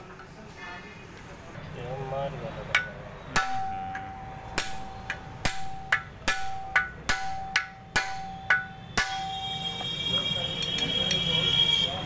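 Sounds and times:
hammer striking metal: 2.6s - 11.4s
steel ringing: 2.7s - 12.0s.

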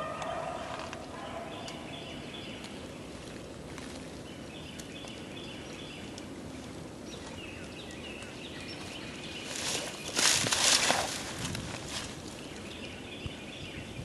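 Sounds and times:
distant hounds baying: 0.0s - 2.3s.

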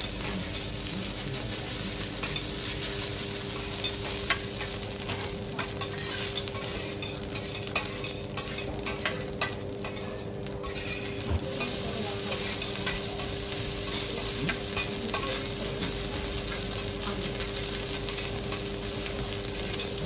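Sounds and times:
food sizzling on griddle: 0.0s - 20.0s
metal spatula scraping hot plate: 3.5s - 15.6s.

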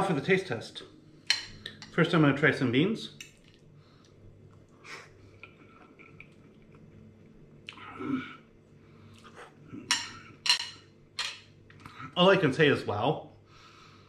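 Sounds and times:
quiet chewing: 3.2s - 7.9s.

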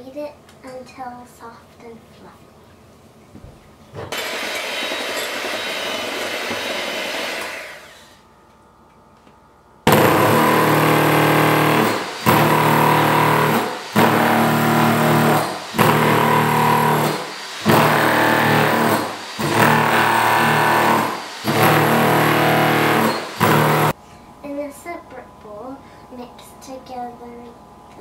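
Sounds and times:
electric jackhammer: 4.1s - 8.2s, 9.9s - 24.0s.

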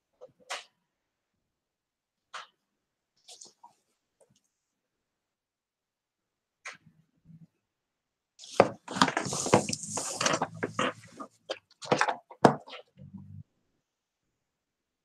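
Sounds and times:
wooden knocks and scraping: 8.5s - 12.9s.

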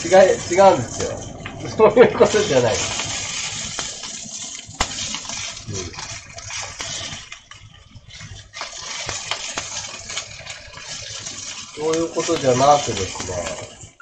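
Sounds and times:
food sizzling in a skillet: 0.0s - 14.0s
spatula scraping a pan: 4.9s - 14.0s.

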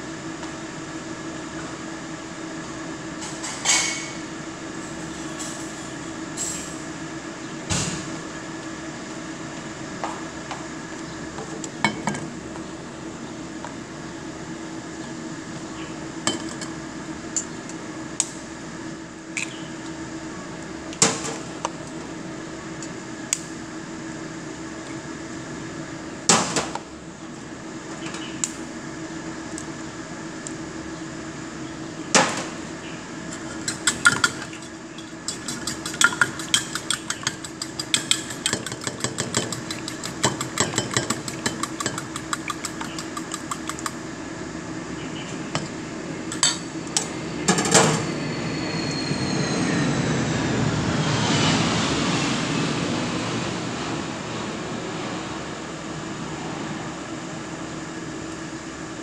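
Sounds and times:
whisk beating eggs in metal bowl: 33.4s - 44.0s
knocks on bowl: 35.3s - 44.0s.

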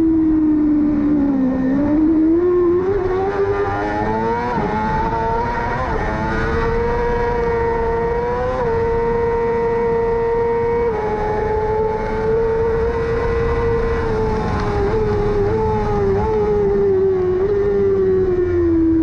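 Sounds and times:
motorcycle engine at high revs: 0.0s - 19.0s.

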